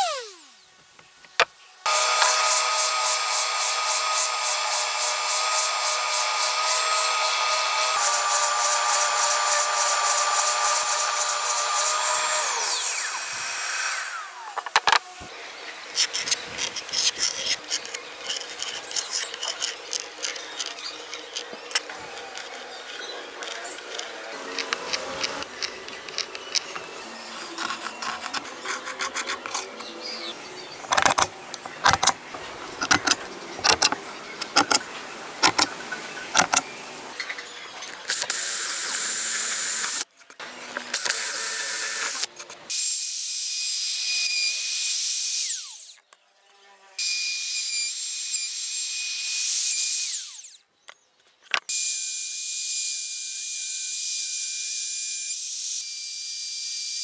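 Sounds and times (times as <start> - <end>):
power drill boring wood: 0.0 - 0.6, 1.9 - 15.0, 16.0 - 34.8, 35.4 - 35.7, 36.3 - 36.6, 41.0 - 46.0, 47.0 - 50.6
trim router whining: 0.0 - 0.6, 1.9 - 15.3, 17.0 - 37.0
pencil compass tapping and scraping wood: 23.4 - 29.9, 30.8 - 34.8, 35.4 - 35.7, 36.3 - 36.6.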